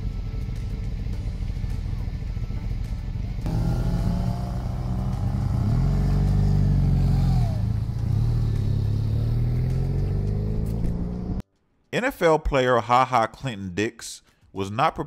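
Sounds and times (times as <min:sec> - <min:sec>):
low engine drone: 0:00.0 - 0:11.4.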